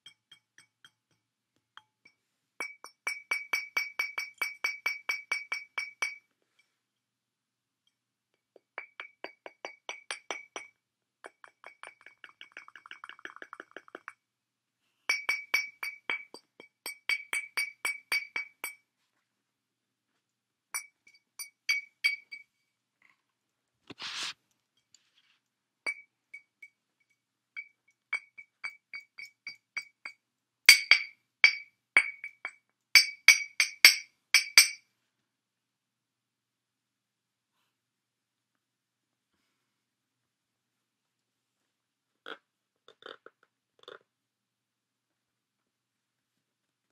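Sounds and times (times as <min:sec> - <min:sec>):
glass bottle being tapped: 0:00.0 - 0:06.3, 0:08.6 - 0:14.2, 0:15.1 - 0:18.8, 0:20.8 - 0:22.4, 0:25.9 - 0:34.8.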